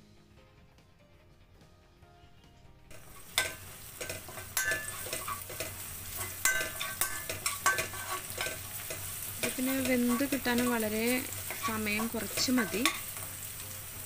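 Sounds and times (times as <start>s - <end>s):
food sizzling in hot oil: 2.9s - 14.0s
metal spoon scraping a pan: 2.9s - 14.0s.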